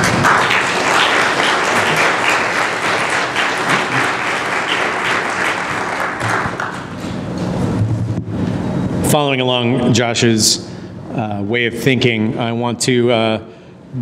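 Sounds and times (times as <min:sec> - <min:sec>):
crowd applauding: 0:00.0 - 0:07.2.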